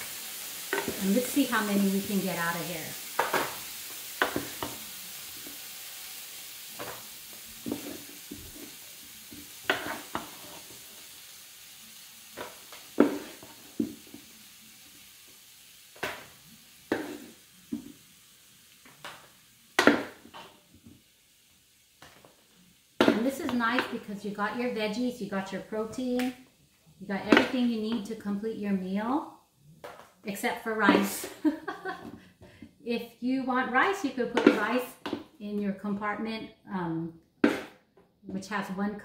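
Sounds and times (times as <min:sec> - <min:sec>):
faint sizzle from pan: 0:00.0 - 0:39.0
wooden spatulas scraping a pan: 0:09.6 - 0:10.7.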